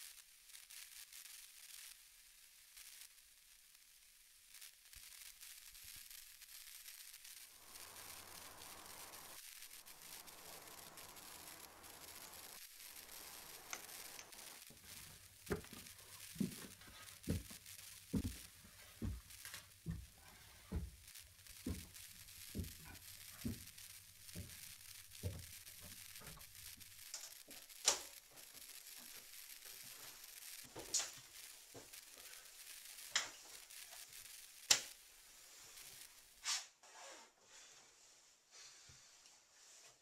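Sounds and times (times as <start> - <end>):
footsteps climbing stairs: 17.3 - 18.4.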